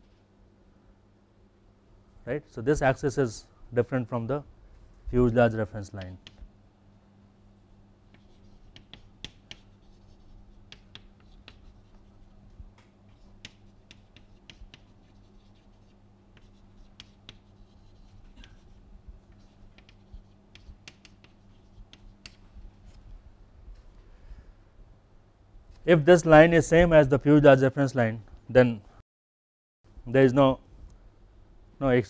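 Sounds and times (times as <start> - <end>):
low steady hum: 0.0 - 29.0, 29.9 - 32.0
chalk tapping and scratching: 6.0 - 6.5, 7.6 - 23.0.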